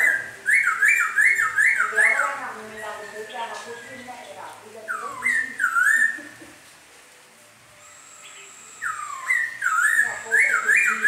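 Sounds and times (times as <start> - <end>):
bird singing whistled notes: 0.0 - 6.4, 7.7 - 11.0
thin high whine: 5.0 - 11.0.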